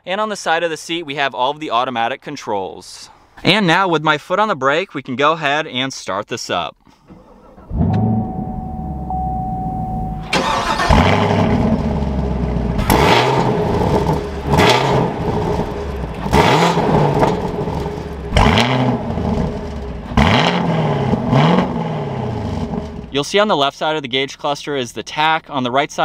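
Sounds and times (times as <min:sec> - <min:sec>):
car engine idling and revving: 0:07.5 - 0:23.2.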